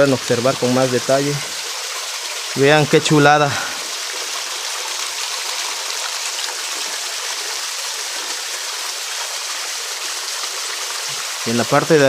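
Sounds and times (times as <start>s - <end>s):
waterfall splashing into pool: 0.0s - 12.0s.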